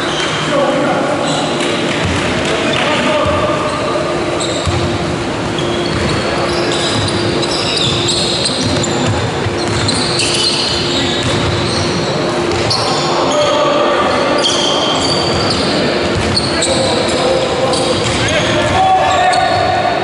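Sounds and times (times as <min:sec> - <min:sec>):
trainers squeaking on floor: 0:03.8 - 0:04.8, 0:05.5 - 0:19.8.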